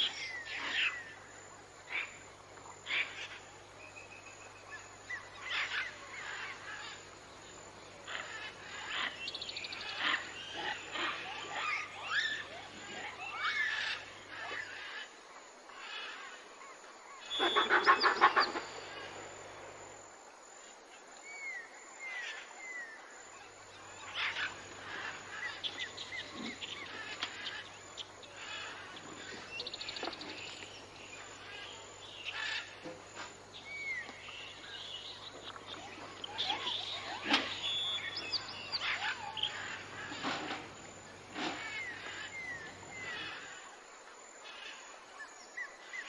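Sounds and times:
birds chirping: 0:00.0 - 0:15.1, 0:17.2 - 0:20.0, 0:21.3 - 0:43.6.

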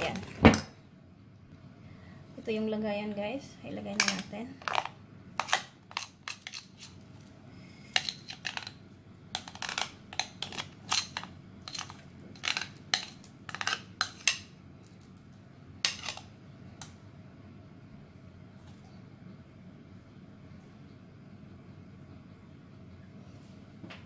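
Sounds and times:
metal spoon scraping glass bowl: 0:09.4 - 0:14.4.

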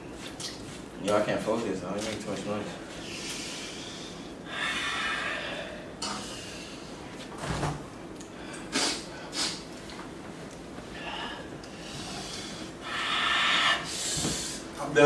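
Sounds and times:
hissing breaths through teeth: 0:08.7 - 0:09.7, 0:11.8 - 0:14.7.

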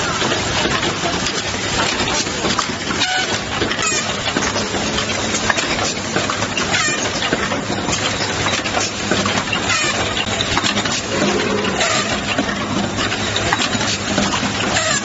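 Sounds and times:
machine clicks and rattles: 0:00.0 - 0:15.0
steady low machine hum: 0:10.3 - 0:14.8.

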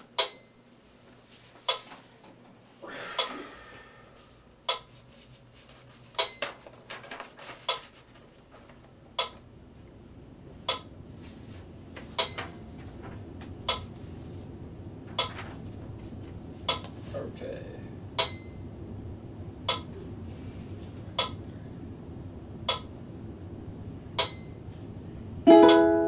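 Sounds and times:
accented metronome click with ringing: 0:00.2 - 0:00.7, 0:09.2 - 0:09.4, 0:10.7 - 0:10.9, 0:12.2 - 0:12.8, 0:13.7 - 0:13.9, 0:15.2 - 0:15.4, 0:18.2 - 0:18.8, 0:19.6 - 0:19.9, 0:21.2 - 0:21.4, 0:22.6 - 0:22.9, 0:24.2 - 0:24.8, 0:25.5 - 0:26.0
metronome clicking: 0:09.2 - 0:09.4, 0:10.7 - 0:10.9, 0:19.7 - 0:19.9, 0:21.2 - 0:21.4, 0:22.6 - 0:22.9, 0:25.5 - 0:26.0.

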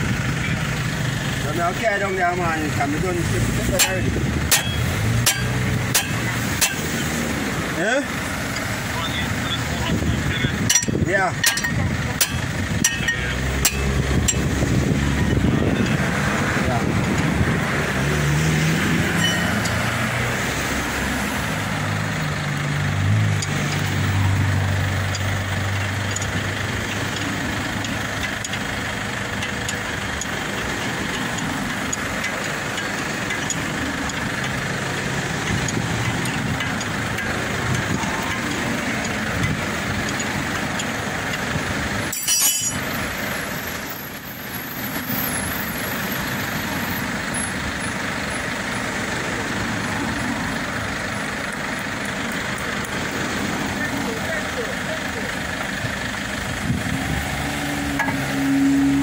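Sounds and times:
motor vehicle engine hum: 0:00.0 - 0:59.0.

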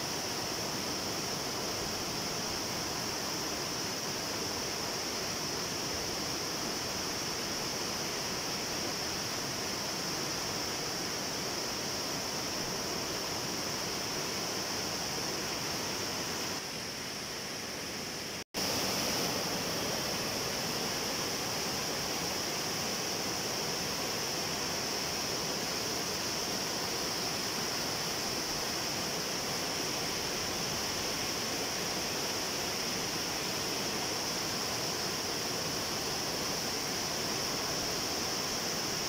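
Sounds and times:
water rushing over rocks: 0:18.6 - 0:39.0.

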